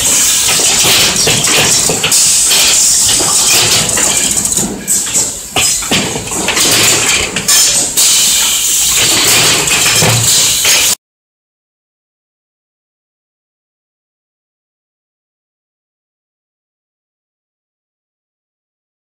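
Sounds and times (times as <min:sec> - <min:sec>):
machinery knocking and clattering: 0:00.0 - 0:11.0
steady high hiss: 0:00.0 - 0:11.0.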